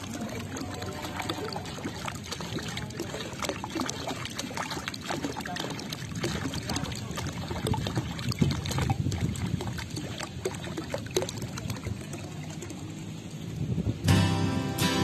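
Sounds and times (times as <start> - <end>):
water drips: 0.0 - 13.5
pool water splashing: 0.0 - 14.0.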